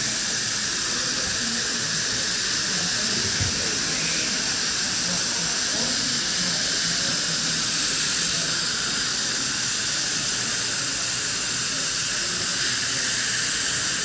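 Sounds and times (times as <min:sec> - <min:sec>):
dental suction hissing: 0:00.0 - 0:14.0.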